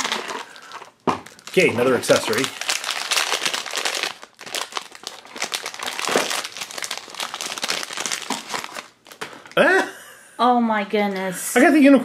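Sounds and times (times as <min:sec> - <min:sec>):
foil bag crinkling: 0:00.0 - 0:09.6.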